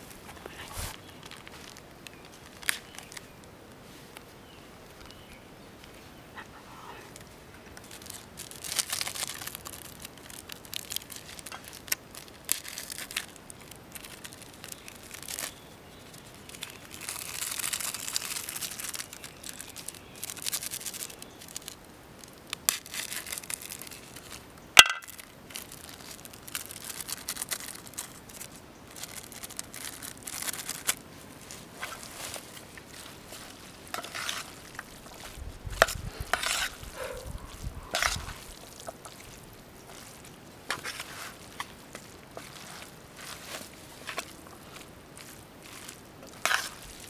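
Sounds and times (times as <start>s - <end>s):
packet crinkling and rustling: 0.0s - 3.5s, 7.1s - 47.0s.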